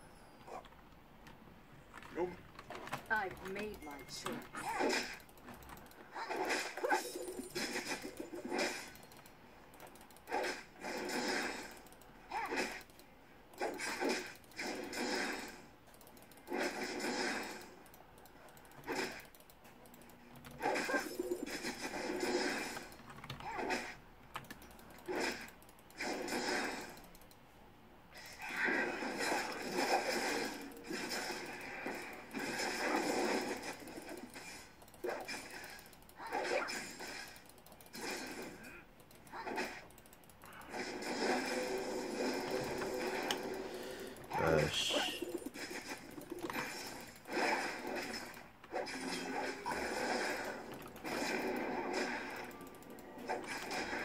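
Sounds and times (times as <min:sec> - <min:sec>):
computer keyboard clatter: 0:00.6 - 0:04.6, 0:05.2 - 0:06.0, 0:17.9 - 0:20.6, 0:22.8 - 0:23.5, 0:24.3 - 0:25.9
computer keyboard clicking: 0:05.2 - 0:06.0, 0:09.0 - 0:10.3, 0:11.8 - 0:12.1, 0:15.8 - 0:16.5, 0:17.8 - 0:20.6, 0:22.8 - 0:23.5, 0:24.2 - 0:26.0, 0:26.9 - 0:27.4, 0:37.2 - 0:38.0, 0:39.0 - 0:40.7.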